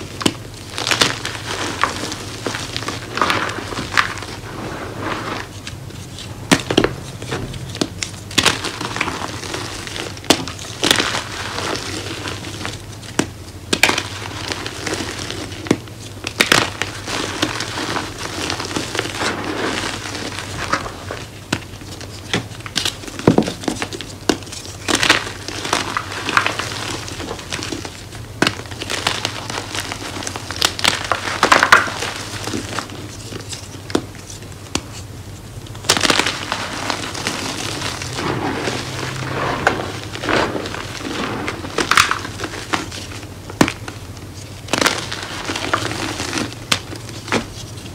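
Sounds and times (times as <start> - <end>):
hands crushing chalk blocks: 0.0 - 47.9
powdery rustling: 0.0 - 47.9.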